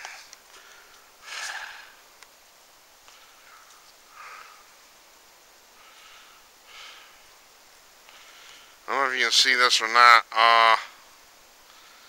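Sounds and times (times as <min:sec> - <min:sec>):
person sniffing: 0:00.0 - 0:02.0
faint breaths: 0:00.0 - 0:08.9, 0:10.9 - 0:12.0.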